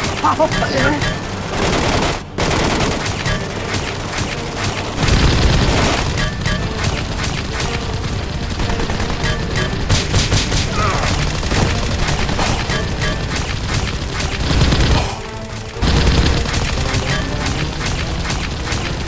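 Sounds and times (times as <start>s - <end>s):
background music: 0.0s - 19.0s
rapid gunfire: 0.0s - 19.0s.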